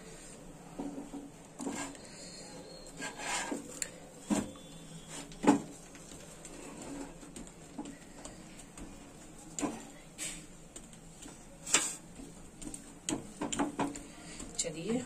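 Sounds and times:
spatula scraping a pan: 0:01.6 - 0:03.7.

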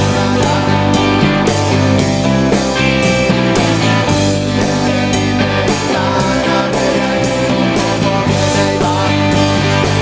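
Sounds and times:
rock band playing live: 0:00.0 - 0:10.0
steady drum beat: 0:00.0 - 0:10.0.

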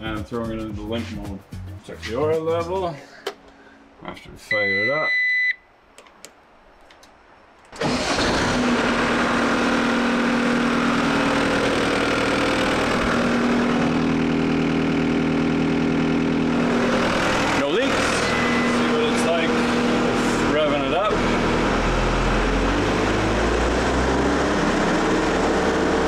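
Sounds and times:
diesel engine starting and running: 0:07.7 - 0:26.0
short electronic beep: 0:18.1 - 0:19.0.

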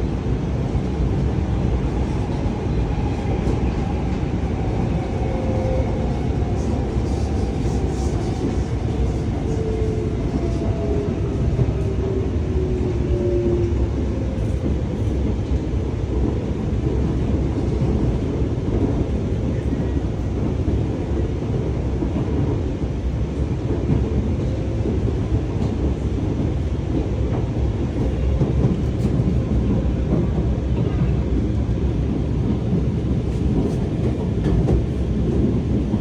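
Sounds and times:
train wheels rumbling on rails: 0:00.0 - 0:36.0.

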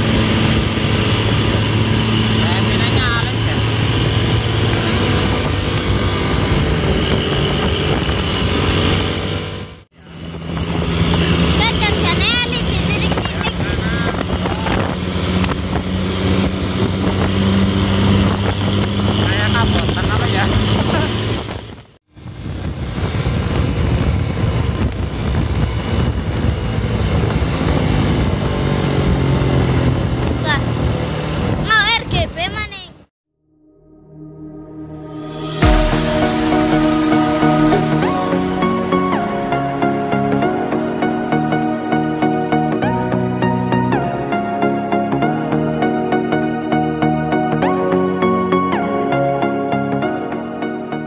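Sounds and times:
high whistle horn: 0:00.0 - 0:06.2, 0:33.6 - 0:43.1
bus engine running: 0:00.0 - 0:33.1, 0:35.2 - 0:51.0
road noise: 0:00.0 - 0:33.1, 0:33.7 - 0:51.0
shrill high whistle: 0:00.1 - 0:05.1.

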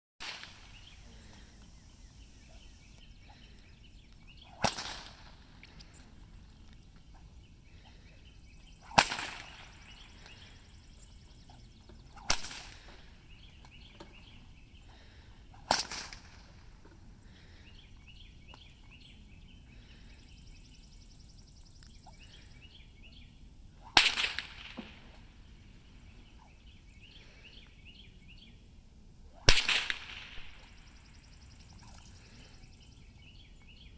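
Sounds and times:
whip cracks with echo: 0:00.2 - 0:00.7, 0:04.5 - 0:05.4, 0:08.8 - 0:10.4, 0:12.1 - 0:12.9, 0:15.6 - 0:16.4, 0:23.8 - 0:25.2, 0:29.4 - 0:30.8
faint chirping: 0:00.3 - 0:15.6, 0:16.4 - 0:23.9, 0:30.4 - 0:33.9.

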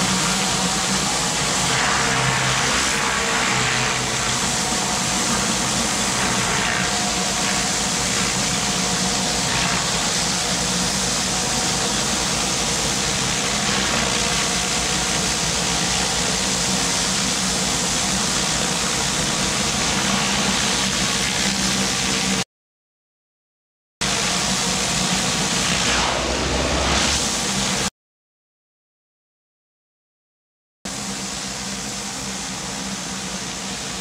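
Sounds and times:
pressure washer engine drone: 0:00.0 - 0:22.4, 0:24.0 - 0:27.9, 0:30.9 - 0:34.0
water spraying on concrete: 0:00.0 - 0:22.4.

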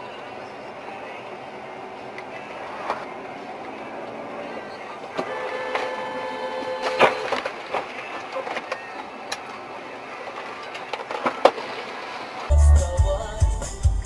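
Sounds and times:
vehicle and road noise: 0:00.0 - 0:12.6
music with heavy beat: 0:12.5 - 0:14.0.

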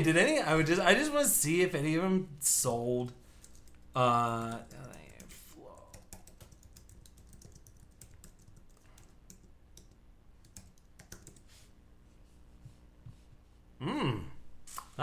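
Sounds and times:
person speaking: 0:00.0 - 0:06.1
computer keyboard typing: 0:03.4 - 0:11.5.

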